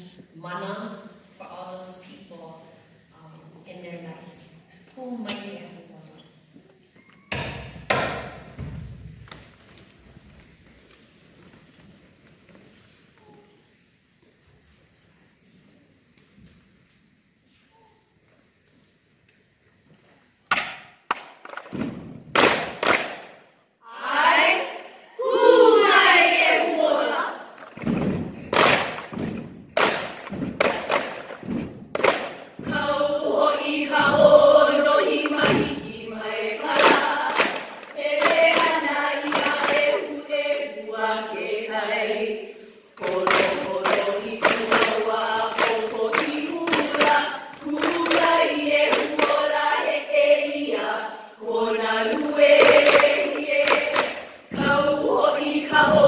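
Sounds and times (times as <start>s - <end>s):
women chanting in unison: 23.8s - 27.5s, 32.6s - 56.0s.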